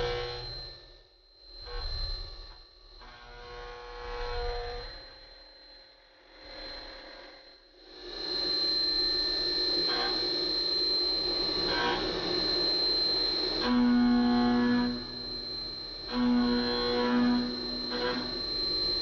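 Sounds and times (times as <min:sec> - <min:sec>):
milling machine high whine: 0:00.0 - 0:00.8, 0:08.0 - 0:19.0
low humming tone: 0:09.6 - 0:19.0.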